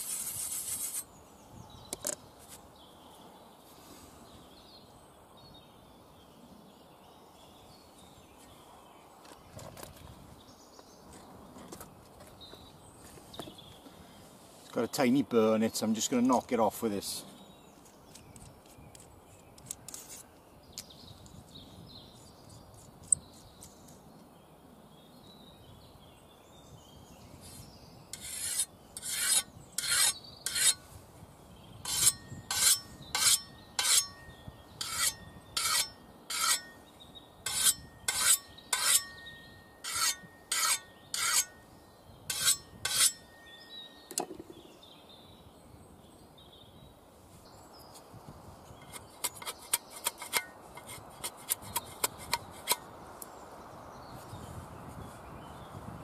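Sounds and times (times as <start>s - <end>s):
sharpening stone scraping metal: 0.0s - 1.1s, 28.2s - 30.8s, 31.8s - 36.8s, 37.5s - 41.6s, 42.3s - 43.4s, 48.8s - 52.8s.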